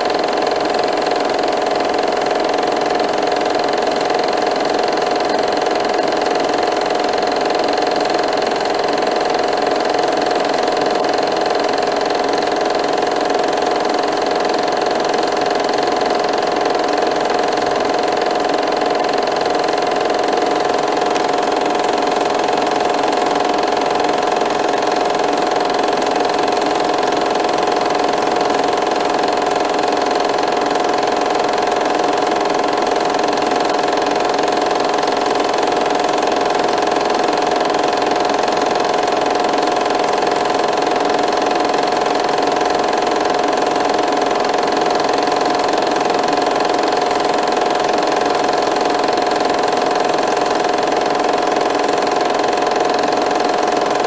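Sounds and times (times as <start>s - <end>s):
film projector whirring: 0.0s - 54.0s.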